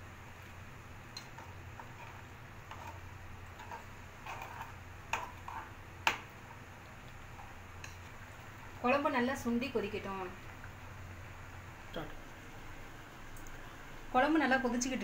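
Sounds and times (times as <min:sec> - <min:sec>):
spoon scraping metal pan: 0:01.4 - 0:03.0, 0:03.6 - 0:05.7.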